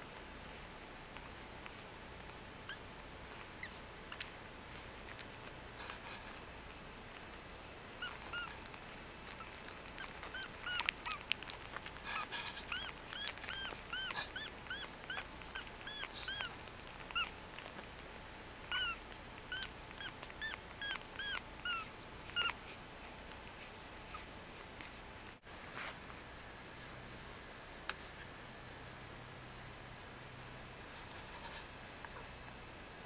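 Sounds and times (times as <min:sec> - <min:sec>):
puppies squeaking: 0:01.2 - 0:17.8, 0:18.6 - 0:25.0.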